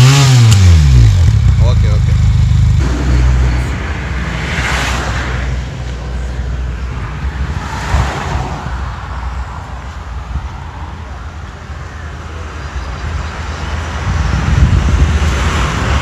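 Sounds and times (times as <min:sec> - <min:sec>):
motorcycle engine idling: 0:00.8 - 0:03.1
rushing noise: 0:02.6 - 0:16.0.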